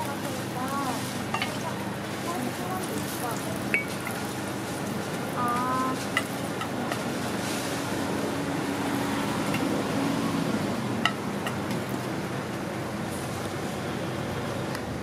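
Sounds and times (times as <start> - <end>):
food sizzling on a griddle: 0.0 - 10.4.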